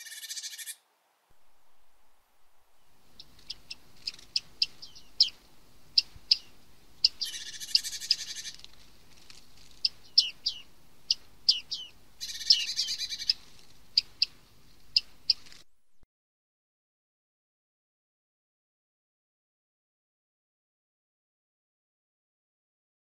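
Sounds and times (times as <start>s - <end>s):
bird buzzy rattle: 7.2s - 9.9s.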